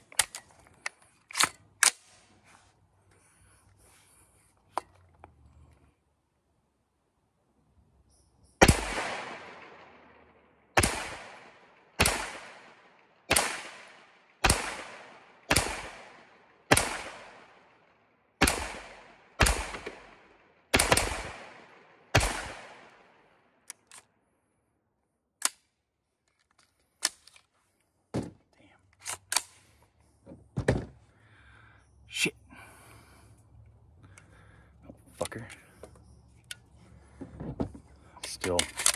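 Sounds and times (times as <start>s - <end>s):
metallic clicks of gun handling: 0.0s - 2.3s, 23.6s - 24.2s, 25.4s - 27.6s, 28.8s - 29.9s, 35.1s - 36.8s, 38.2s - 38.9s
gunshots with echo: 8.6s - 10.2s, 10.8s - 17.6s, 18.4s - 23.0s.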